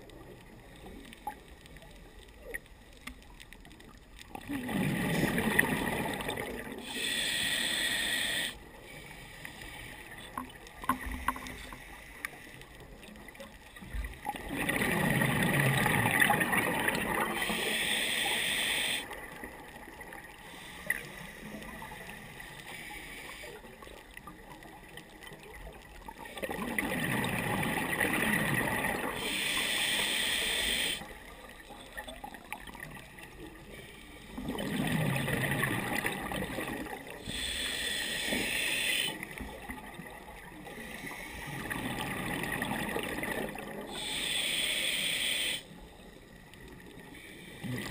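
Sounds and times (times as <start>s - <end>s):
exhaled bubbles rushing: 4.3s - 6.8s, 14.2s - 17.4s, 26.4s - 29.1s, 34.4s - 37.1s, 41.6s - 43.9s
regulator air hiss: 6.8s - 10.1s, 17.4s - 19.1s, 29.2s - 31.1s, 37.2s - 39.2s, 43.9s - 45.8s.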